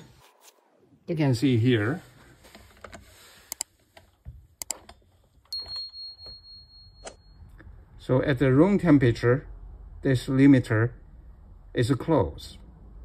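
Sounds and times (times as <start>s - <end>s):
test probes clicking on metal: 4.6s - 5.0s.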